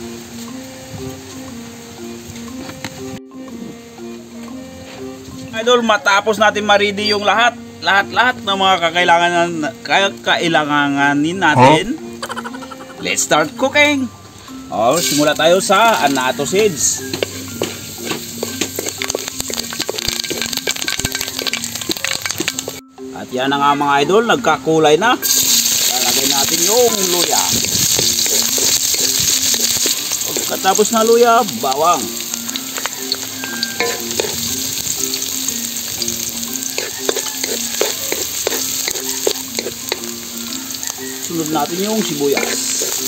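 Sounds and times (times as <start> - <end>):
seeds crackling in hot oil: 14.9 - 22.8, 25.2 - 43.0
wooden spoon scraping a wok: 17.1 - 22.8, 36.7 - 40.0.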